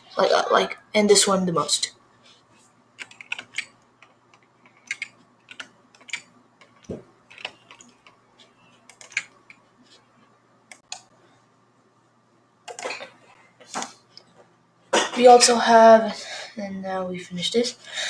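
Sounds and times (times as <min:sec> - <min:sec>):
computer keyboard clicks: 0:03.0 - 0:08.2, 0:08.8 - 0:09.6, 0:10.7 - 0:11.1.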